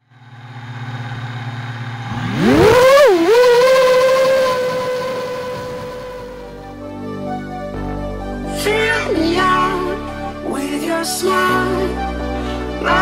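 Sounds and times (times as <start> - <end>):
quadcopter motors whining: 0.4 - 6.8.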